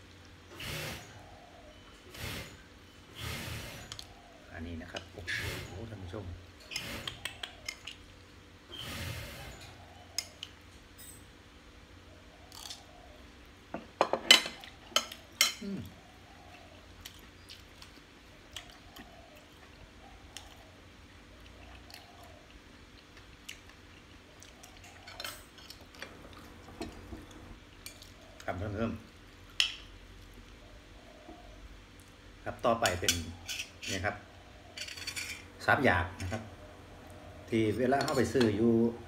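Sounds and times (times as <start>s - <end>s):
soft chewing: 14.6s - 32.4s.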